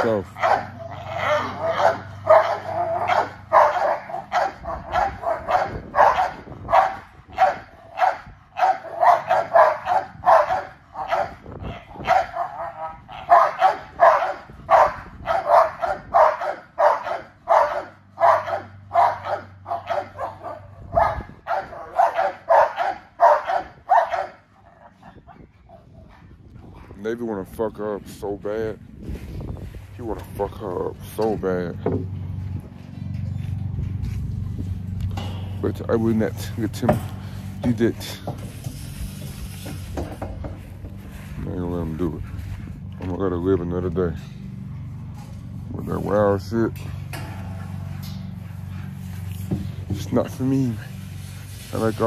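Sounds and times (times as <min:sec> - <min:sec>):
dog barking rapidly: 0:00.0 - 0:24.9.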